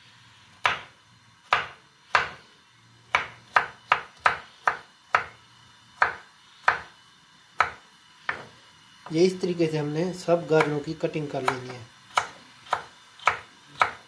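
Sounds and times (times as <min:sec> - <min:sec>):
knife hitting chopping board: 0:00.6 - 0:00.9, 0:03.1 - 0:05.3, 0:07.6 - 0:08.5, 0:10.6 - 0:10.8, 0:11.4 - 0:14.0.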